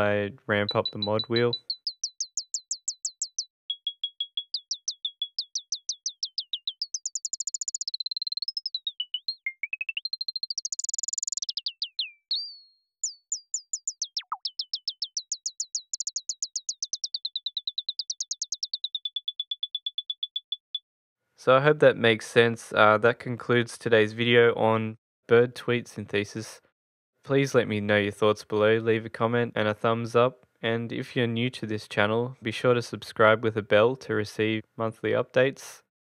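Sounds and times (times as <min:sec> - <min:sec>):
synthesized bird chirps: 0:00.0 - 0:20.8.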